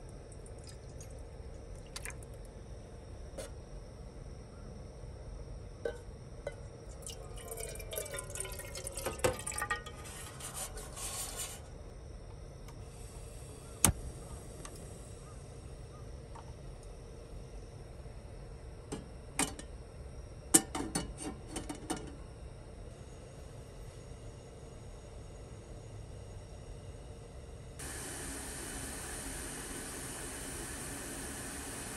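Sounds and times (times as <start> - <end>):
liquid pouring into container: 0.3 - 2.3, 6.9 - 10.4.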